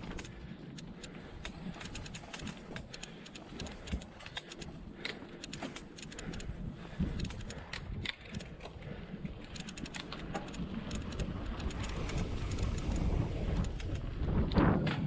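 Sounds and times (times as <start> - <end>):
bike clicks and rattles: 0.0 - 15.0
wind on microphone: 6.1 - 15.0
bike tyres rumbling on gravel: 8.6 - 15.0.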